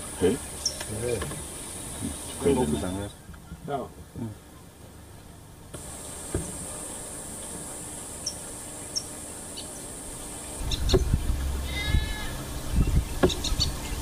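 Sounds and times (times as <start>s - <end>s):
bird chirps: 0.0s - 2.4s, 8.2s - 14.0s
insects droning: 0.0s - 3.2s, 4.5s - 14.0s
low rumbling: 10.5s - 14.0s.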